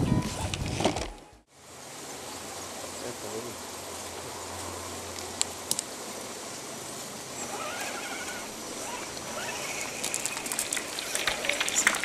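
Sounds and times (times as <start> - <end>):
toy truck motor whining: 7.4 - 11.6
stones clicking under tyres: 9.1 - 12.0.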